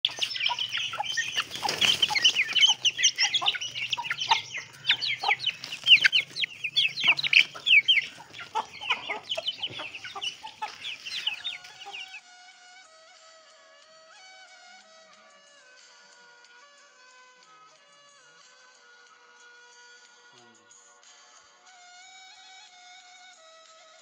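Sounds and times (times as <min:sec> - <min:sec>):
chicks peeping: 0:00.0 - 0:12.2
hen clucking: 0:00.0 - 0:12.2.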